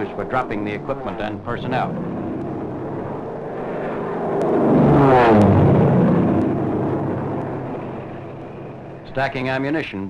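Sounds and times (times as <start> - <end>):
propeller aircraft engine drone: 0.0 - 10.0.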